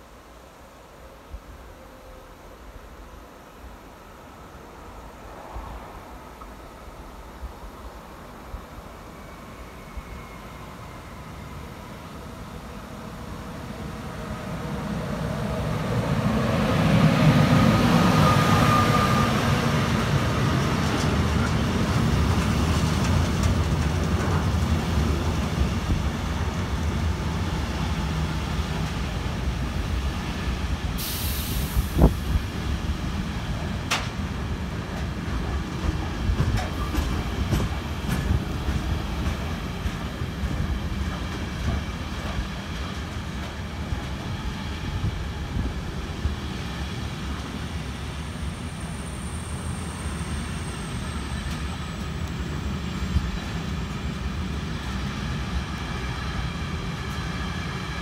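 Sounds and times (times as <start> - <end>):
train wheels rumbling on rails: 8.6 - 58.0
short hiss: 31.0 - 32.3.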